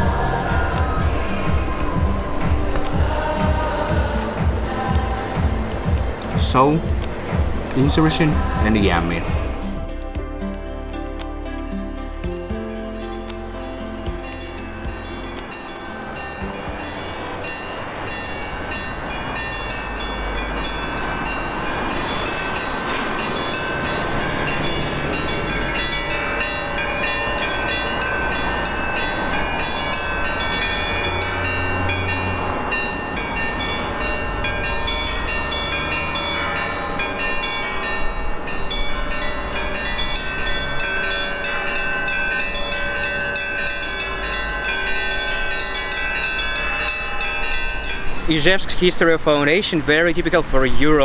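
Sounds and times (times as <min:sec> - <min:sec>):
steady low bass: 0:00.0 - 0:17.6
synth chords: 0:00.0 - 0:48.6.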